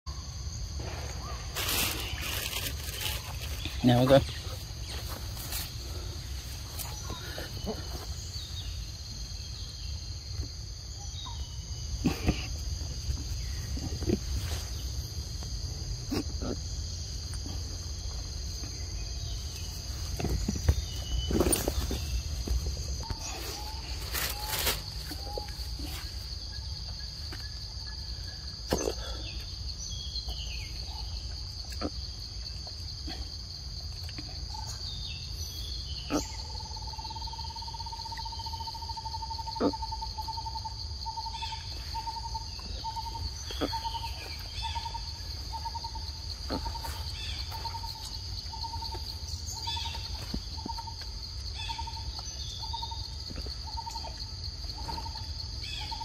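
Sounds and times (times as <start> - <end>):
insects droning: 0.1 - 56.0
bird calls: 34.5 - 54.2.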